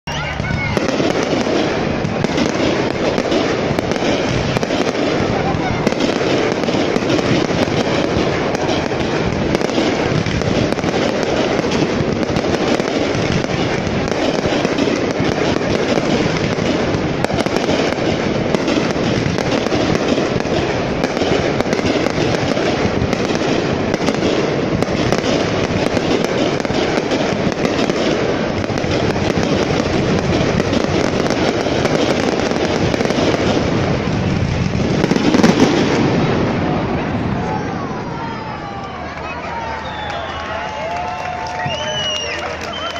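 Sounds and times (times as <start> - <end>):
fireworks bursting and crackling: 0.0 - 42.9.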